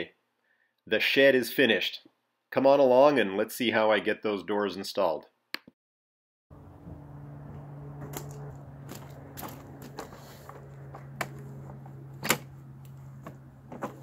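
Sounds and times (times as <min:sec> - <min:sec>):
steady low hum: 0:06.5 - 0:14.0.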